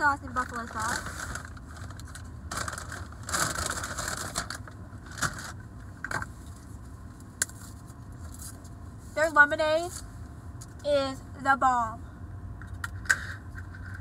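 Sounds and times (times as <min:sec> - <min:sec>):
low steady rumble: 0:00.0 - 0:14.0
packaging rustling and crinkling: 0:00.4 - 0:05.6.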